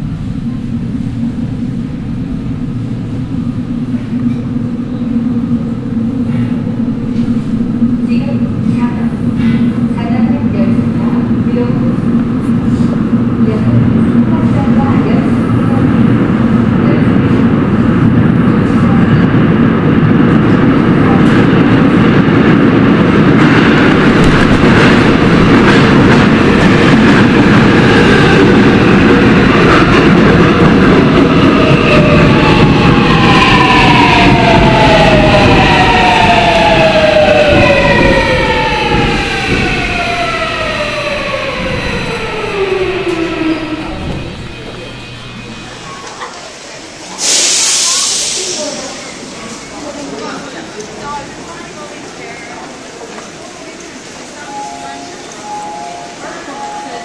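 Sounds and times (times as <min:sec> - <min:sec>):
subway train rumble: 0:00.0 - 0:57.0.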